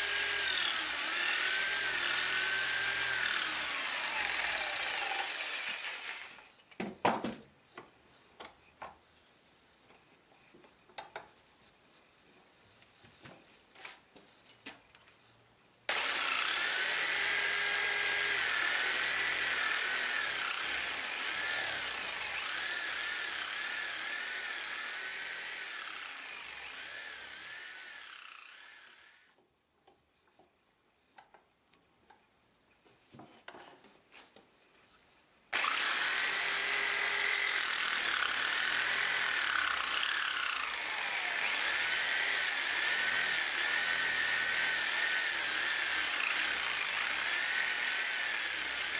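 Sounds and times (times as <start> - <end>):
electric jigsaw cutting wood: 0.0 - 6.5, 15.9 - 29.4, 35.5 - 48.9.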